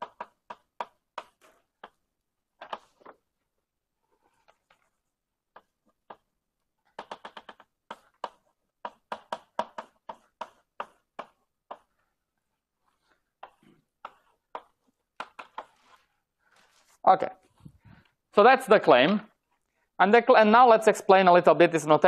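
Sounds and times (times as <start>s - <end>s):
chalk writing on blackboard: 7.0s - 12.0s, 12.8s - 17.0s.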